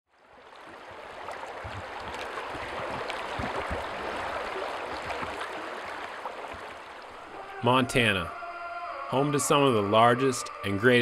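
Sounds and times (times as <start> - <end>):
water splashing and gurgling: 0.1 - 8.3
mountain stream rushing: 0.2 - 11.0.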